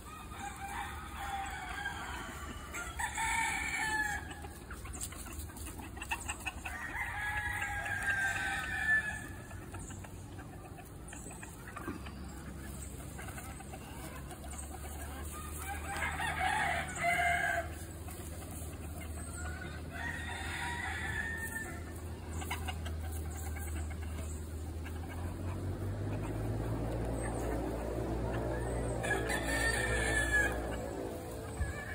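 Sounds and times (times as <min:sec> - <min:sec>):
hens clucking: 0:00.0 - 0:31.9
roosters crowing: 0:00.0 - 0:31.9.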